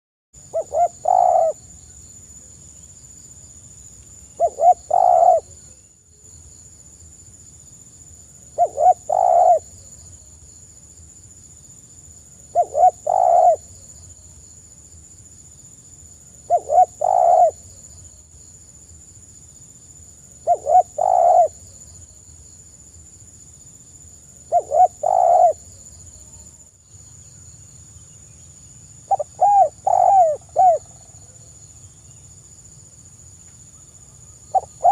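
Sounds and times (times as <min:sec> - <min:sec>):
dove cooing: 0:00.5 - 0:01.7, 0:04.4 - 0:05.6, 0:08.6 - 0:09.8, 0:12.5 - 0:13.7, 0:16.5 - 0:17.6, 0:20.4 - 0:21.6, 0:24.5 - 0:25.8, 0:29.1 - 0:31.0, 0:34.5 - 0:34.9.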